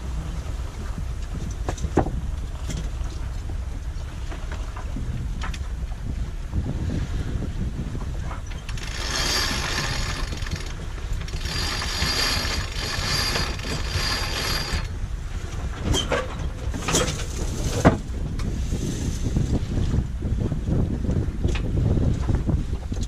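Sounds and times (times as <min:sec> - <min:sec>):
wind buffeting microphone: 0:00.0 - 0:23.0
sharp clicks and knocks: 0:08.4 - 0:14.9
winch ratcheting: 0:08.5 - 0:14.9.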